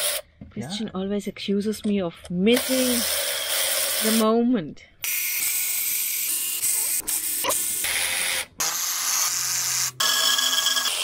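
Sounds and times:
cordless electric ratchet running: 0:00.0 - 0:00.2, 0:02.6 - 0:04.3, 0:05.0 - 0:11.0.

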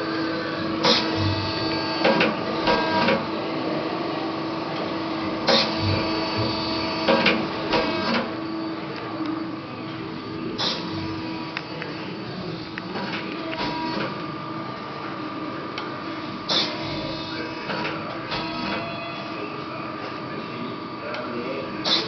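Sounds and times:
machine whirring and clattering: 0:00.0 - 0:03.4, 0:04.4 - 0:14.4, 0:15.0 - 0:19.2
steady machine hum: 0:00.0 - 0:22.0.

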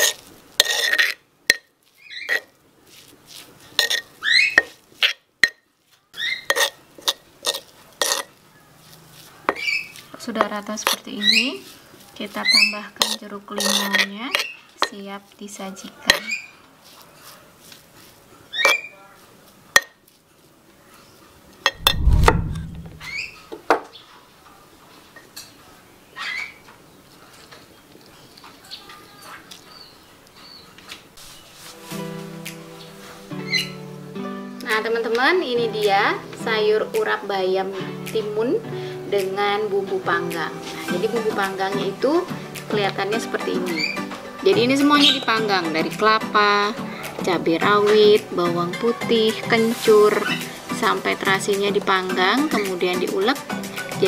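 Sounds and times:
spoon and pestle scraping stone mortar: 0:00.0 - 0:05.6, 0:06.4 - 0:08.4, 0:10.8 - 0:11.7, 0:12.5 - 0:15.0.

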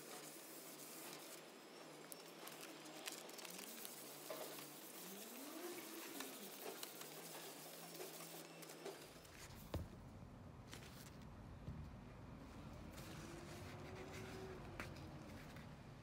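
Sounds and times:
hand sanding wood: 0:02.5 - 0:08.7.

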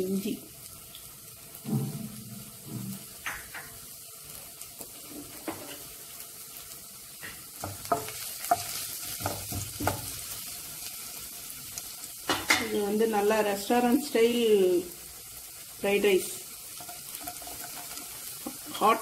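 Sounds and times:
ginger sizzling in hot oil: 0:00.0 - 0:19.0
wooden spatula scraping pan: 0:16.8 - 0:19.0.

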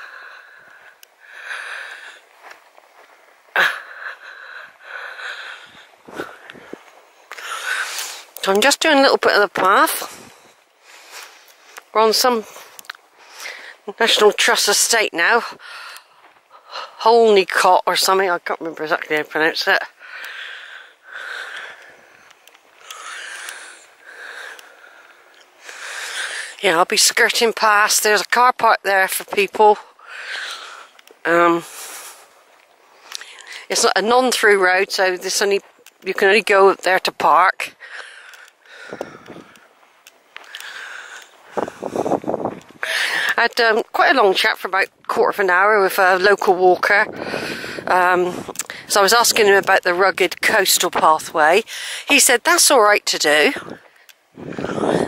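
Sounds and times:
person breathing: 0:00.0 - 0:02.3, 0:03.6 - 0:08.4, 0:10.0 - 0:13.9, 0:15.5 - 0:17.0, 0:20.0 - 0:26.6, 0:29.8 - 0:33.7, 0:37.7 - 0:43.4, 0:47.1 - 0:48.9, 0:51.7 - 0:52.1
faint clicks: 0:00.4 - 0:03.2, 0:12.5 - 0:13.7, 0:19.9 - 0:26.6, 0:30.1 - 0:31.3, 0:32.1 - 0:33.7, 0:35.6 - 0:36.9, 0:37.8 - 0:41.7, 0:53.7 - 0:54.3.

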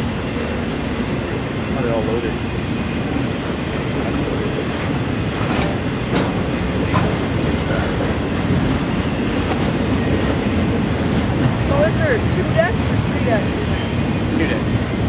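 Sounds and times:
train wheels rumbling on rails: 0:00.0 - 0:15.0
train wheel clicks: 0:04.7 - 0:13.2.

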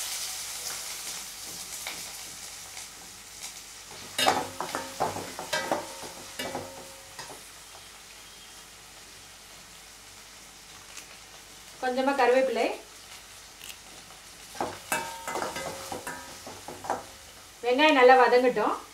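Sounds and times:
onions sizzling in hot oil: 0:00.0 - 0:18.9
metal spatula scraping a pan: 0:04.1 - 0:07.4, 0:14.6 - 0:17.2.

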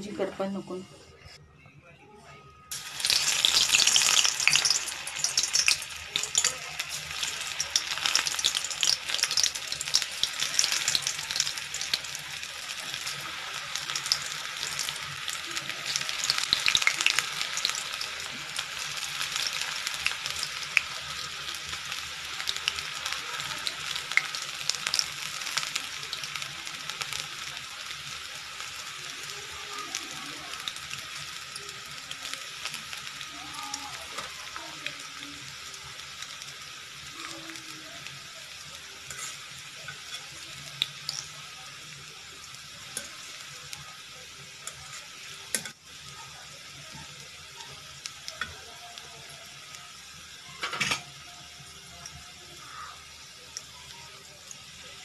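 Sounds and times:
oil popping and crackling: 0:02.7 - 0:27.8
batter deep-frying in oil: 0:02.7 - 0:55.0.

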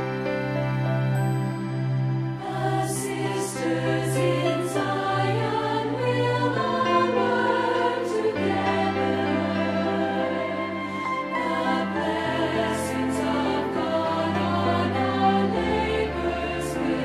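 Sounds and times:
choir singing: 0:01.9 - 0:17.0.

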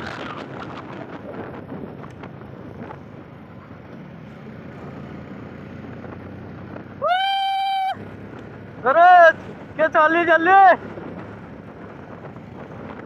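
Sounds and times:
wind noise on microphone: 0:00.0 - 0:08.1, 0:10.6 - 0:13.0
motorcycles running: 0:00.0 - 0:13.0
person whooping: 0:07.0 - 0:08.0.

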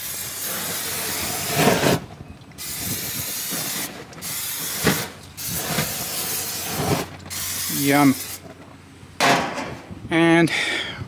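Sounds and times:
cooking spray hissing: 0:00.0 - 0:02.0, 0:02.6 - 0:08.5.

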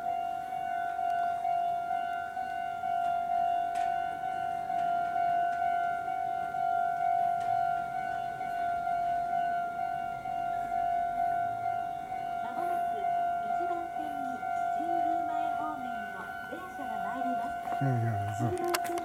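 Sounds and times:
level-crossing alarm tone: 0:00.0 - 0:19.0.

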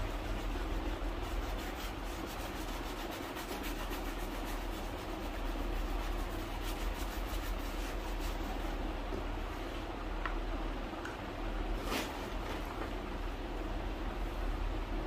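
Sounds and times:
shoe rubbing strokes: 0:00.0 - 0:08.8
steady low hum: 0:00.0 - 0:15.0.

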